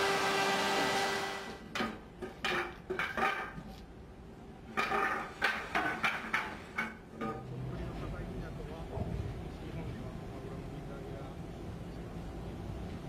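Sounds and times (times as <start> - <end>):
wooden boards knocking together: 1.8 - 3.6, 4.8 - 7.4.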